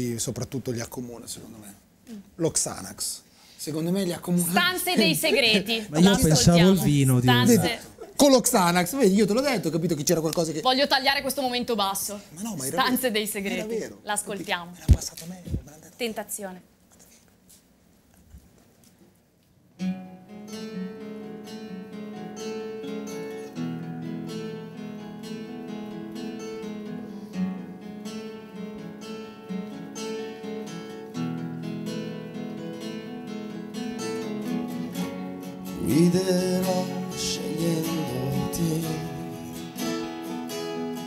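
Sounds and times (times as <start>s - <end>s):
acoustic guitars playing: 4.2s - 10.0s, 19.8s - 41.0s
man singing: 35.7s - 39.8s.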